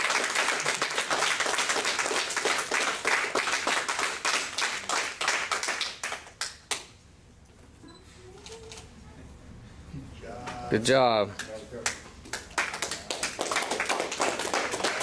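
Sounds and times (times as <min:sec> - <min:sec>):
people clapping: 0:00.0 - 0:07.0, 0:11.4 - 0:15.0.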